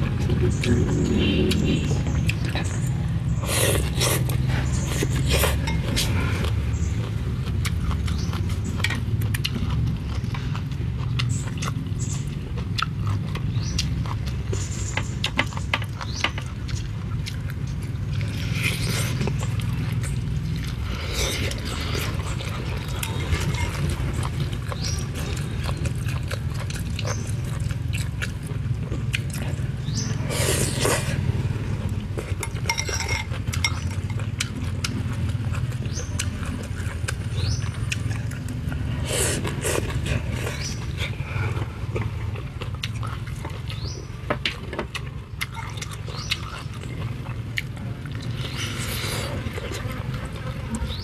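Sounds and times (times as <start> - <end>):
steady low rumble: 0.0 - 15.3
chewing and lip-smacking: 0.0 - 51.0
slurps: 38.9 - 41.6.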